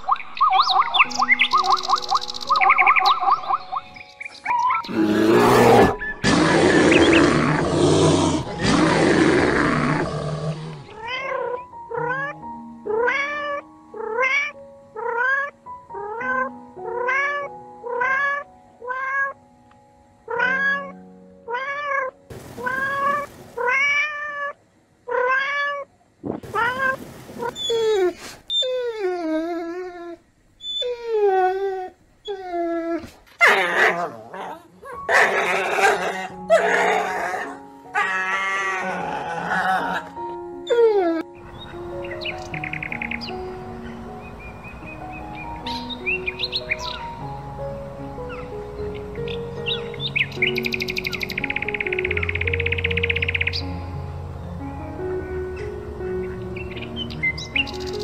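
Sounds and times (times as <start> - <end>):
cat meowing: 10.9 - 19.4, 20.3 - 25.9.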